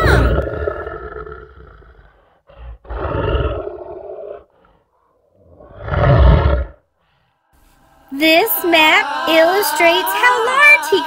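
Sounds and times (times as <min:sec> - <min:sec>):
deep roars: 0:00.0 - 0:04.7.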